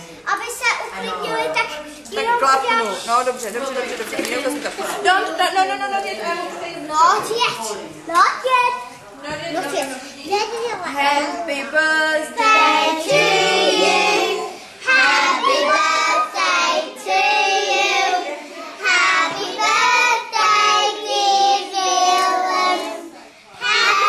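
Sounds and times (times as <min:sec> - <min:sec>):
children singing together: 0:12.0 - 0:24.0.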